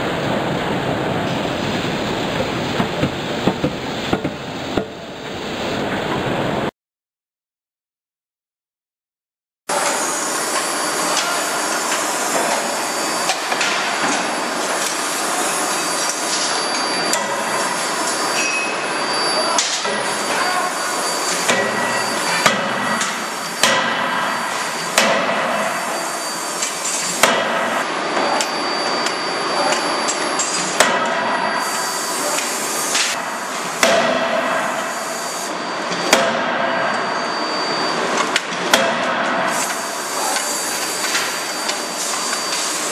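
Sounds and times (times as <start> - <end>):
loud machinery noise: 0.0 - 6.7, 9.7 - 42.9
forging hammer blows: 9.7 - 42.9.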